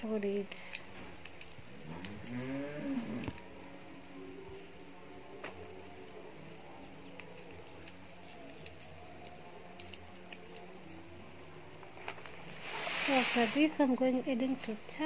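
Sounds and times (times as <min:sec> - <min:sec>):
bean pods snapping: 0:00.1 - 0:03.9, 0:05.4 - 0:12.6.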